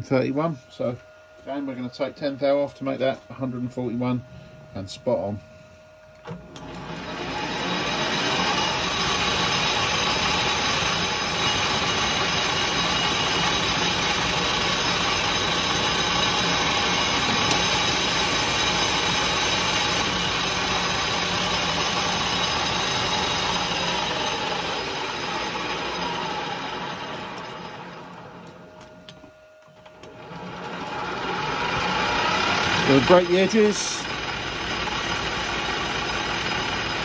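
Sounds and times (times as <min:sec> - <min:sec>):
metal lathe cutting: 0:06.6 - 0:28.3, 0:30.1 - 0:37.0.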